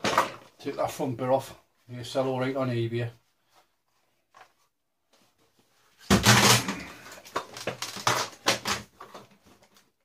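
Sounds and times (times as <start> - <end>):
plastic parts clattering: 0.0 - 0.6, 6.0 - 9.9.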